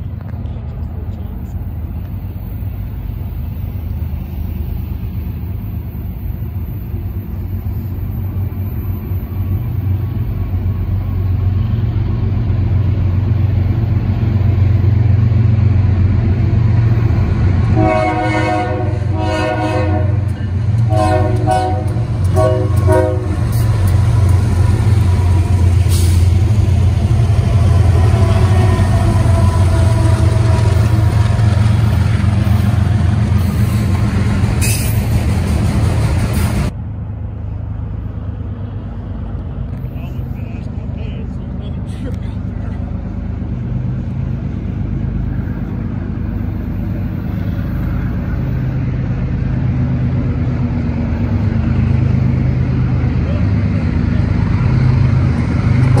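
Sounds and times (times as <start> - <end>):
diesel locomotives rumbling: 0.0 - 56.0
train air horn blasts: 17.7 - 23.6, 27.6 - 31.2.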